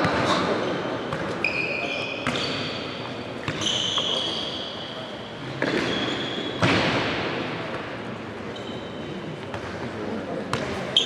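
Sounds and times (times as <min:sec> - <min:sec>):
shoes squeaking on floor: 0:01.3 - 0:05.0, 0:05.6 - 0:06.6, 0:08.5 - 0:09.1.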